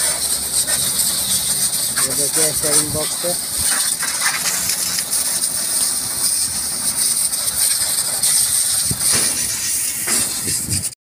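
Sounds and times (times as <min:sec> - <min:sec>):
pressure washer spray hissing on metal: 0:00.0 - 0:11.0.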